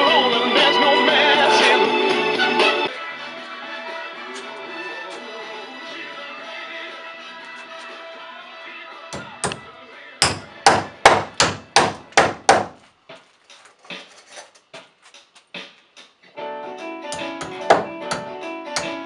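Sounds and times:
background music: 0:00.0 - 0:19.0
hammer striking wooden stud: 0:09.2 - 0:12.8, 0:17.2 - 0:19.0.

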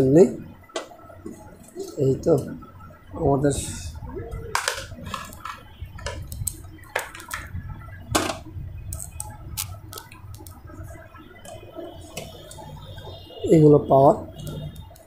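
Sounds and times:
clicks and taps of cables and parts: 0:04.6 - 0:07.5.

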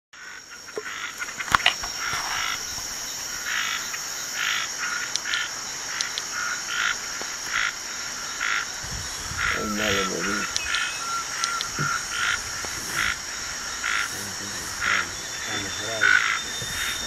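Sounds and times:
high-pitched insect whine: 0:00.2 - 0:17.0
raspy frog calls: 0:00.2 - 0:17.0
sharp clicks: 0:05.1 - 0:06.3, 0:10.4 - 0:13.1.

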